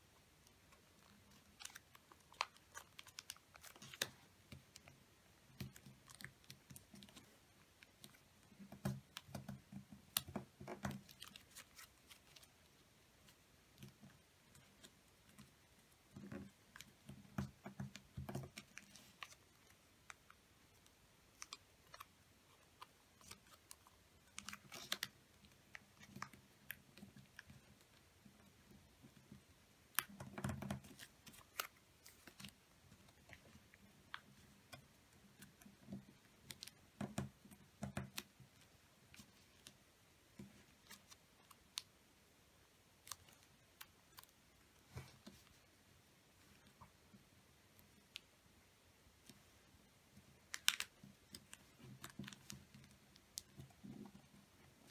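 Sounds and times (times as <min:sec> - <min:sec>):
paper being folded and creased: 0:00.4 - 0:28.0, 0:30.0 - 0:37.4, 0:40.4 - 0:41.8, 0:50.3 - 0:54.9.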